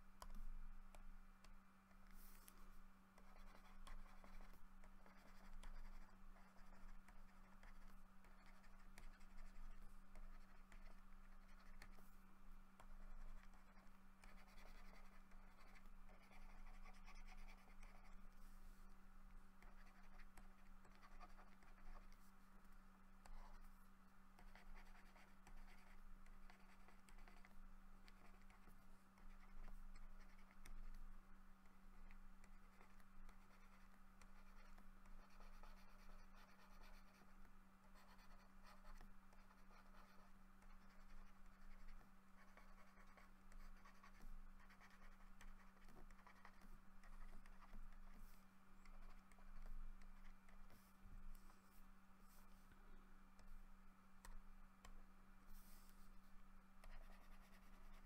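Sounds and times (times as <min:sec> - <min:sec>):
low electrical hum: 0:00.0 - 0:58.0
stylus scratching on tablet: 0:00.2 - 0:53.6, 0:54.2 - 0:58.0.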